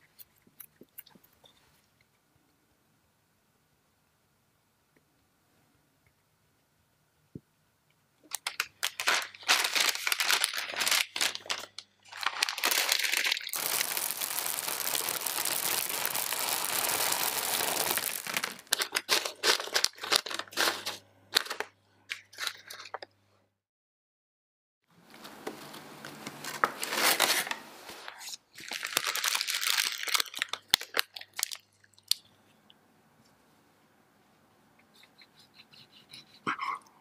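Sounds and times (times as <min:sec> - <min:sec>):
parchment paper crinkling: 0:08.2 - 0:21.7, 0:25.2 - 0:32.2
beans clicking as they settle: 0:08.3 - 0:20.6
dried beans pouring: 0:08.9 - 0:20.8.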